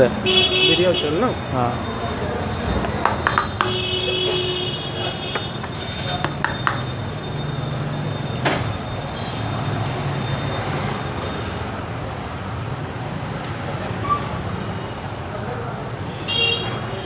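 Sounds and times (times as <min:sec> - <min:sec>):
street traffic: 0:00.0 - 0:17.0.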